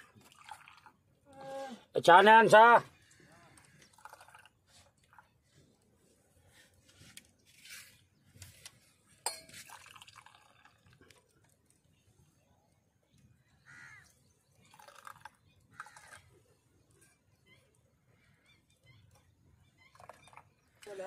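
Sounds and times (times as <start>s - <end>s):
tea splashing and trickling: 0.0s - 1.3s, 3.0s - 5.8s, 9.2s - 12.2s, 13.9s - 16.9s, 19.8s - 21.0s
sharp metallic clink: 9.3s - 9.7s.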